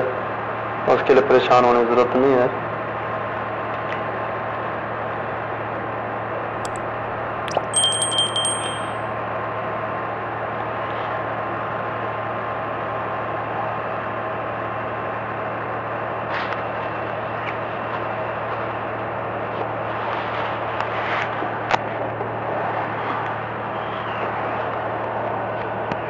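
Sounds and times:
metallic clink: 0:06.7 - 0:06.9, 0:07.5 - 0:09.1.

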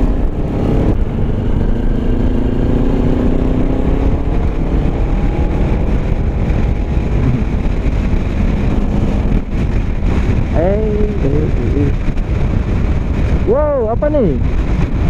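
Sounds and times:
motorcycle engine running: 0:00.0 - 0:15.0
wind buffeting on microphone: 0:00.0 - 0:15.0.

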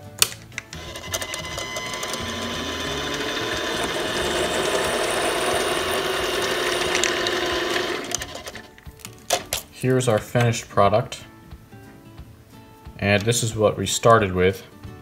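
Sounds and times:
bit cutting metal bolt: 0:00.2 - 0:08.6
lathe motor whine: 0:00.8 - 0:08.7.

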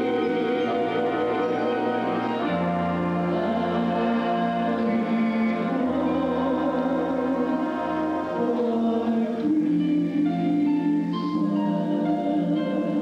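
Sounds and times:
choir singing held chords: 0:00.0 - 0:13.0
instrumental accompaniment: 0:00.0 - 0:13.0.

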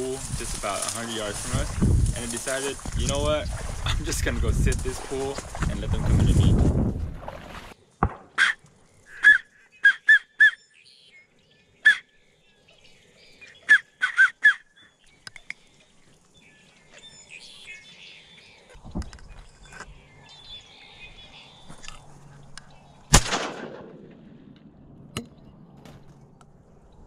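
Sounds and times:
whistled duck calls: 0:08.3 - 0:11.1, 0:11.8 - 0:12.1, 0:13.5 - 0:14.9
faint bird chatter: 0:08.4 - 0:23.2.

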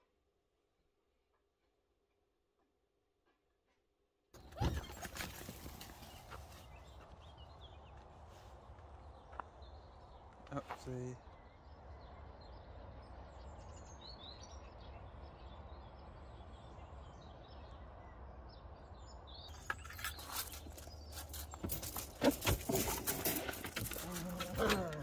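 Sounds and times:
faint birdsong chirps: 0:00.0 - 0:25.0
low outdoor hum: 0:04.4 - 0:25.0
wire dog crate rattling: 0:19.8 - 0:25.0.

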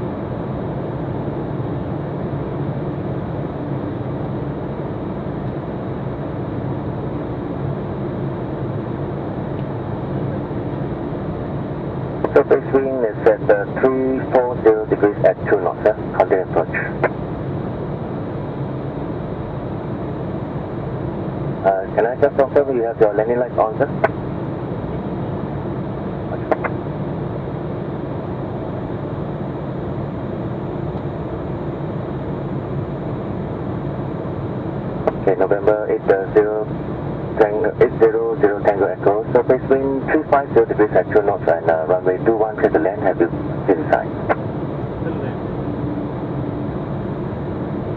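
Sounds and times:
airflow rush in cockpit: 0:00.0 - 0:47.9
jet engines humming: 0:00.0 - 0:47.9
airflow noise: 0:12.0 - 0:17.6.

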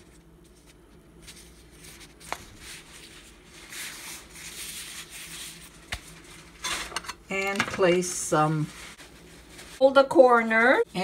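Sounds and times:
pastry sheets rustling: 0:00.0 - 0:11.0.

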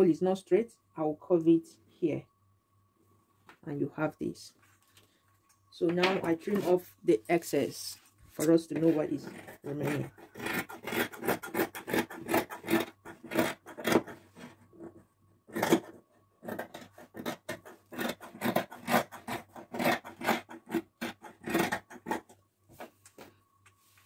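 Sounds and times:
shears snipping fabric: 0:08.4 - 0:14.1.

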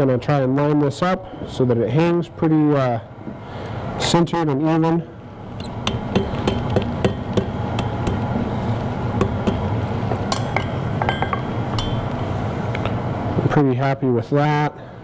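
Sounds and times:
hammer tapping on anvil: 0:05.7 - 0:08.3, 0:09.2 - 0:12.1.

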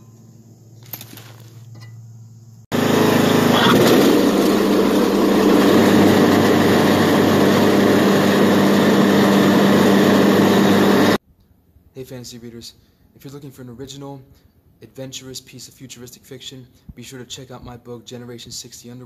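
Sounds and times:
lawn mower engine running: 0:02.7 - 0:11.2.

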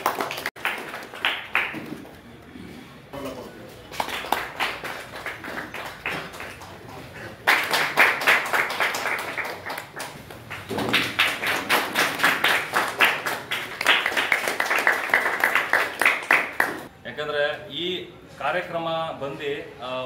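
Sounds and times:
audience clapping: 0:00.0 - 0:02.2, 0:03.9 - 0:16.9.

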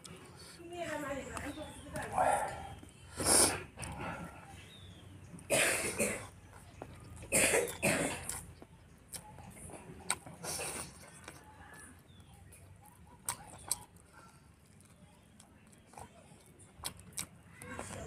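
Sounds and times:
man coughing: 0:07.3 - 0:08.3.

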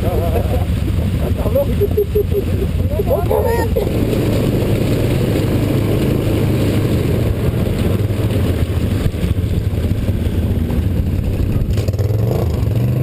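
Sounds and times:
quad bike engine running: 0:00.0 - 0:13.0.

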